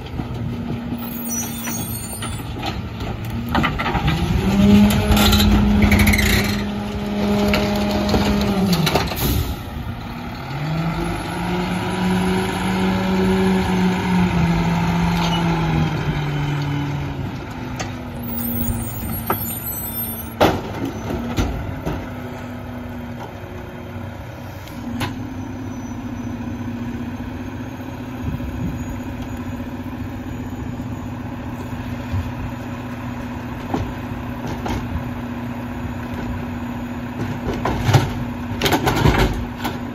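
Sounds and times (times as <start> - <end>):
garbage truck diesel engine: 0.0 - 39.9
air brakes hissing: 9.1 - 9.7.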